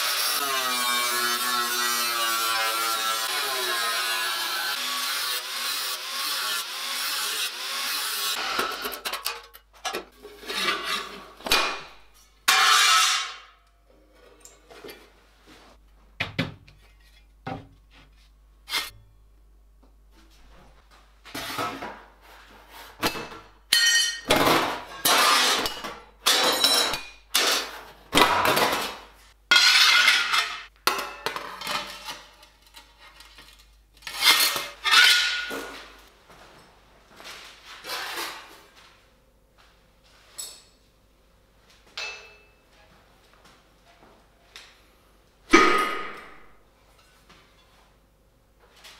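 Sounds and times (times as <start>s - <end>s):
angle grinder cutting steel: 0.0s - 9.1s.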